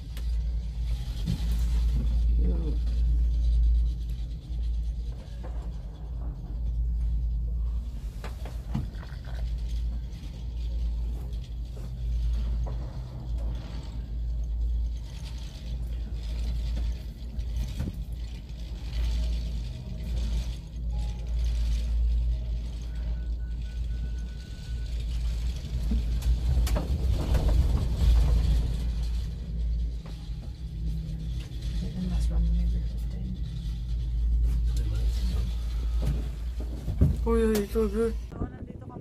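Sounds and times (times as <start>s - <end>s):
mechanical rattling and clicks: 0.0s - 38.4s
cable car rumbling: 0.0s - 39.0s.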